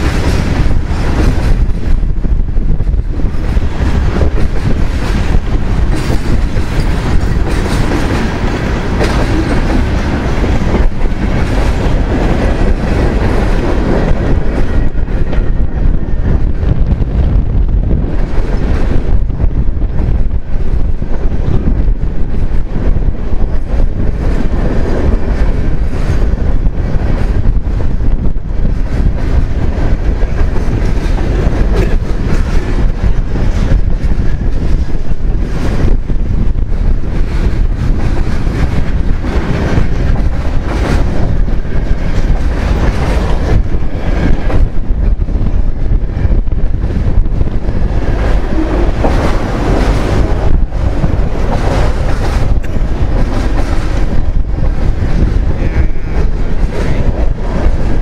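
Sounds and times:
wheels clacking over rail joints: 0:00.0 - 0:16.0
train wheels rumbling on rail: 0:00.0 - 0:58.0.

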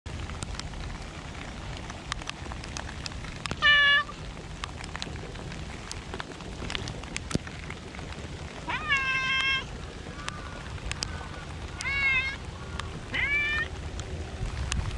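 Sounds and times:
rain falling: 0:00.1 - 0:14.9
raindrops ticking: 0:00.1 - 0:14.9
cat meowing: 0:03.6 - 0:04.1, 0:08.7 - 0:09.7, 0:11.8 - 0:12.4, 0:13.1 - 0:13.7.

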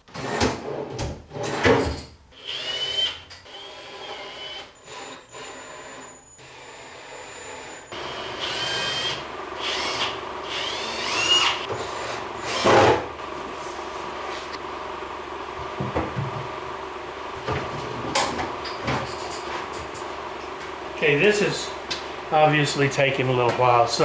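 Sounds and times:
cordless drill whining: 0:02.3 - 0:13.0.

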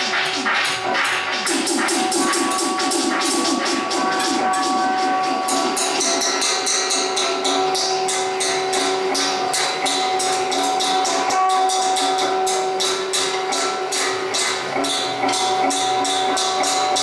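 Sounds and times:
sharp bright strikes: 0:00.0 - 0:17.0
drone of held tones: 0:01.5 - 0:17.0.

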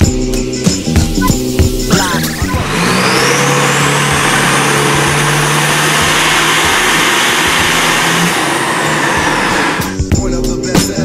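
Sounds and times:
steady high whine: 0:00.8 - 0:10.0
diesel truck engine under load: 0:02.2 - 0:10.1.

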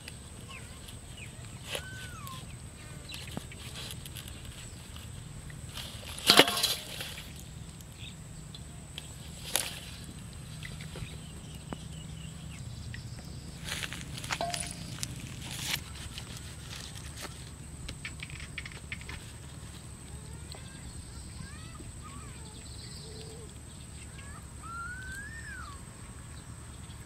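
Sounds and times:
fish splashing in a steel bowl: 0:05.5 - 0:07.6.

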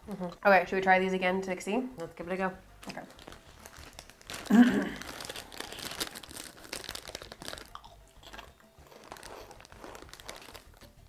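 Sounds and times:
crunching and chewing snacks: 0:02.9 - 0:11.0
plastic snack bags crinkling: 0:02.9 - 0:11.0.

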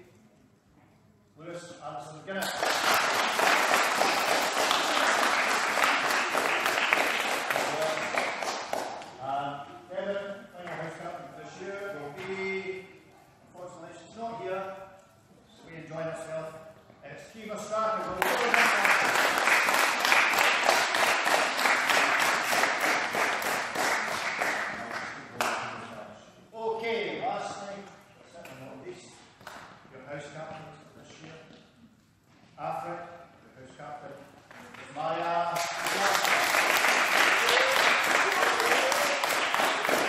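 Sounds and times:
crowd applauding: 0:02.4 - 0:09.0, 0:18.2 - 0:25.5, 0:35.6 - 0:40.0.

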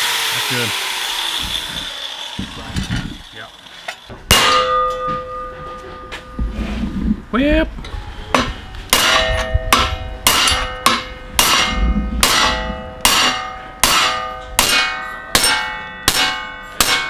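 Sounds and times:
hammer striking steel: 0:03.9 - 0:06.4, 0:08.3 - 0:17.0.

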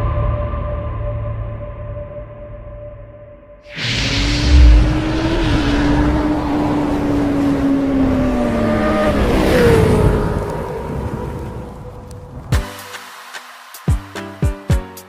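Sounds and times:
loud rush: 0:03.7 - 0:09.8
racing engine note: 0:03.7 - 0:10.4.

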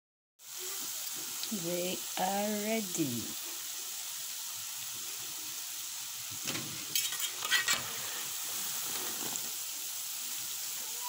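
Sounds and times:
dough sizzling in hot oil: 0:00.4 - 0:11.0
metal spoon scraping pot: 0:06.9 - 0:08.0.

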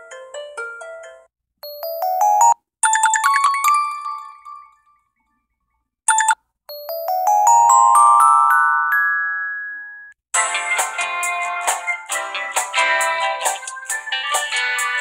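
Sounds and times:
plucked ringtone melody: 0:00.0 - 0:05.1, 0:06.1 - 0:10.2
electronic bell-like ringtones: 0:01.7 - 0:05.0, 0:06.1 - 0:10.2.

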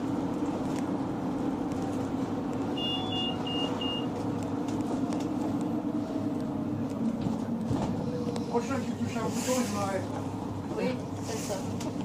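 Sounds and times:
vehicle engine and road noise: 0:00.0 - 0:12.0
short high beeps: 0:02.8 - 0:04.1.

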